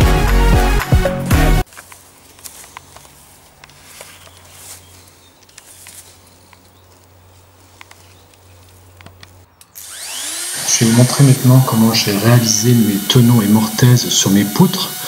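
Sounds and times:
small clicks and ticks: 5.3 - 7.1.

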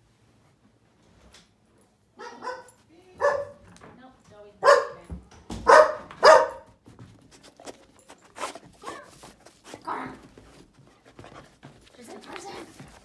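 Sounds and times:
dog barking: 2.2 - 3.7, 4.6 - 6.7, 8.8 - 9.2.

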